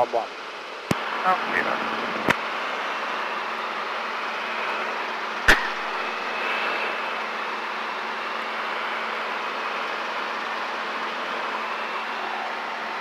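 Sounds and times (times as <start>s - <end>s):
helicopter cabin noise: 0.0s - 13.0s.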